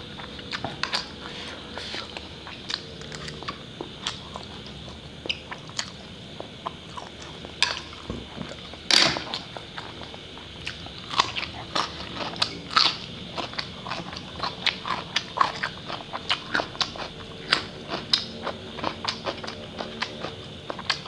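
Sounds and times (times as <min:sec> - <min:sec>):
person crunching cucumber: 0:00.2 - 0:07.7.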